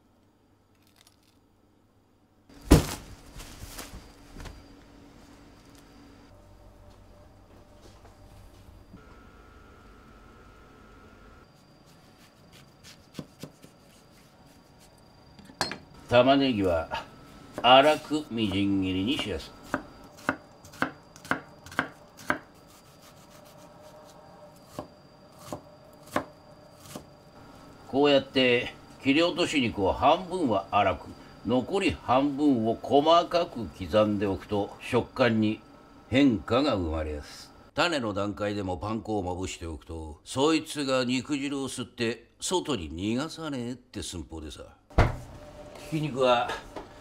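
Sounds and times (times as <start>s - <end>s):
low steady hum: 0.0s - 37.8s
loud thunk: 2.6s - 3.1s, 45.0s - 45.3s
knife chopping on cutting board: 12.3s - 13.8s, 19.6s - 23.6s.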